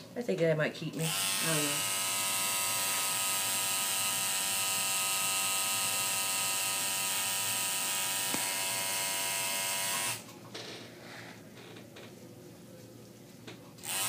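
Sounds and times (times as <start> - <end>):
tattoo machine buzzing: 1.0 - 10.2.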